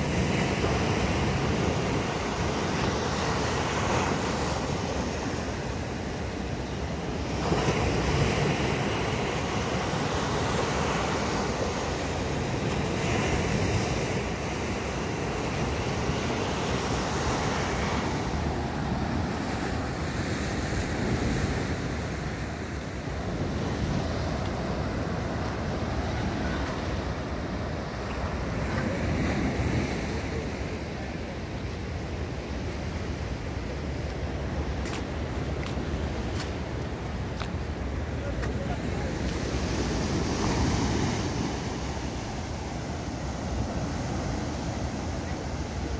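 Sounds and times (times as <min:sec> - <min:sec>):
sea waves washing up a beach: 0:00.0 - 0:45.9.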